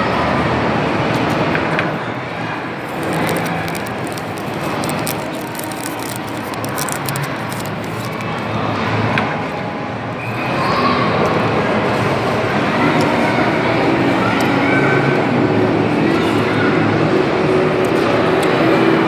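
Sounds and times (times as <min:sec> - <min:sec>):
busy food court din: 0:00.0 - 0:19.0
faint clicks and crackles: 0:02.8 - 0:08.5.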